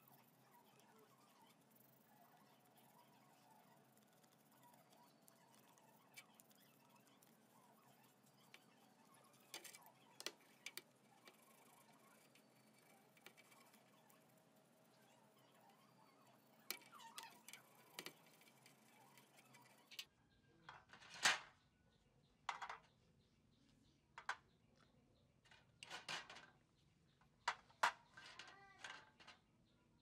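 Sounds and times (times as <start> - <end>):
brush scrubbing metal parts: 0.0 - 20.0
light clicks and scrapes: 0.0 - 20.1.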